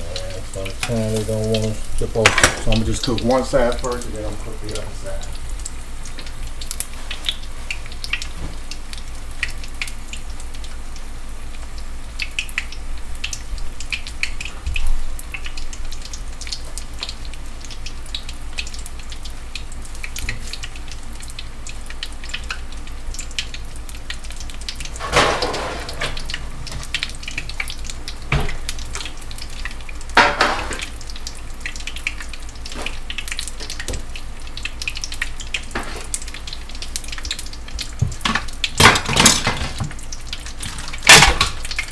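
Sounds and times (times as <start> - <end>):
oil sizzling and popping: 0.0 - 41.9.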